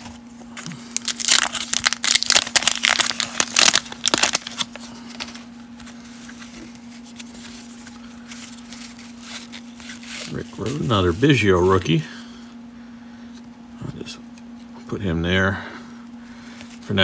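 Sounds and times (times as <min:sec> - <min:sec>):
wrapper tearing and crinkling: 0:00.6 - 0:05.5, 0:06.2 - 0:11.2.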